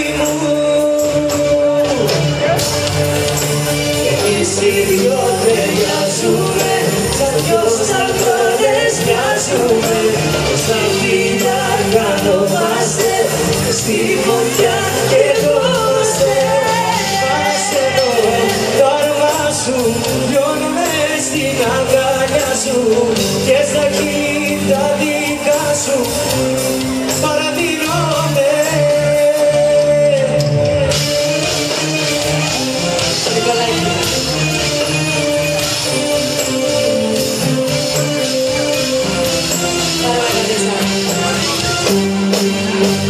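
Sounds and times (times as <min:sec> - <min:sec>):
live band playing pop music: 0:00.0 - 0:43.0.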